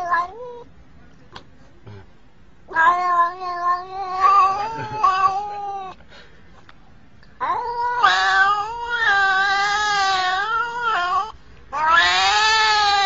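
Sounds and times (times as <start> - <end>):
cat meowing: 2.7 - 6.0, 7.4 - 13.0.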